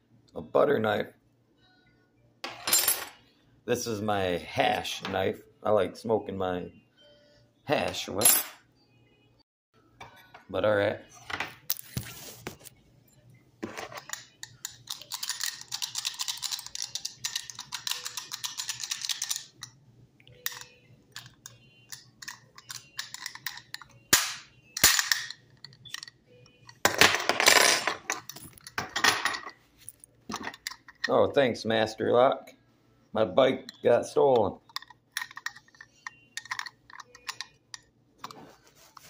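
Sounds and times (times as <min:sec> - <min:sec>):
metallic padlock clicks: 0:34.6 - 0:37.9.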